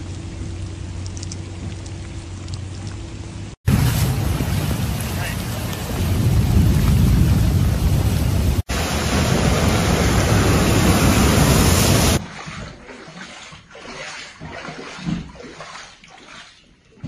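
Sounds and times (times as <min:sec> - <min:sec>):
heavy rain and floodwater rushing: 0:00.0 - 0:16.4
feet wading through water: 0:10.8 - 0:17.0.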